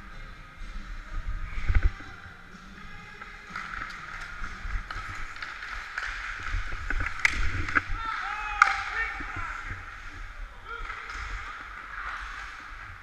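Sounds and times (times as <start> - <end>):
hockey sticks clicking on ice: 2.6 - 13.0
skates scraping on ice: 2.6 - 13.0.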